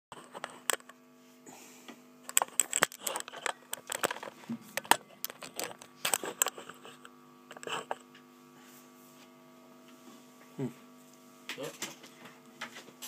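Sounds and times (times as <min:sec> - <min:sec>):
low electrical hum: 0:00.1 - 0:13.0
phone handling clicks and rubs: 0:00.2 - 0:01.0, 0:02.2 - 0:08.2.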